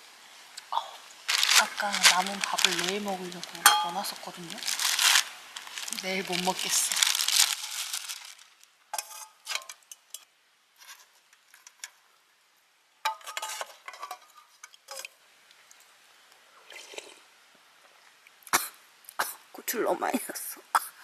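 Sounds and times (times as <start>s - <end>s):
metal utensil clinking in pot: 3.6s - 4.1s, 13.1s - 15.1s.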